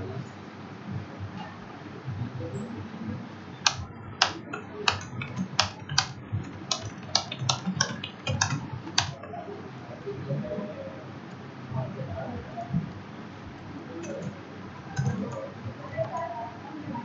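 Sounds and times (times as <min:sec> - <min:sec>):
keyboard typing: 0:03.6 - 0:09.3, 0:14.0 - 0:16.3.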